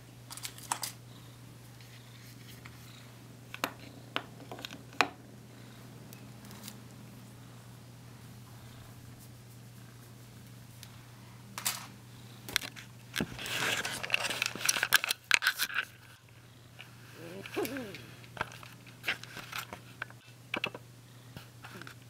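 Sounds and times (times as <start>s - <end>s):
low steady hum: 0.0s - 22.0s
crinkling and rustling: 12.6s - 16.2s, 17.4s - 20.8s.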